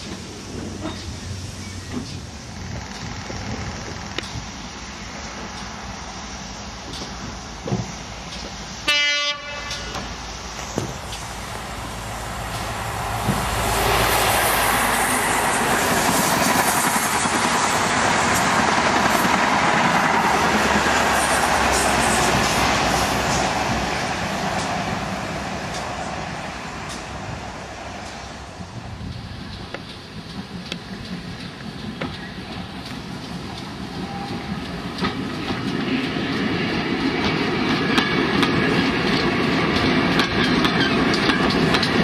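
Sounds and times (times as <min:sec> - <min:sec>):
train passing at speed: 0:00.0 - 0:42.0
train horn blast: 0:08.8 - 0:10.1.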